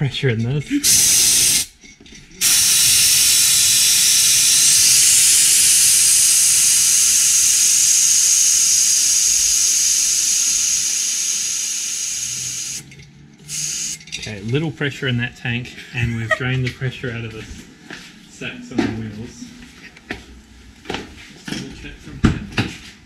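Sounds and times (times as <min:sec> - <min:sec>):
compressed air hissing: 0:00.8 - 0:01.8, 0:02.4 - 0:12.8, 0:13.5 - 0:14.0.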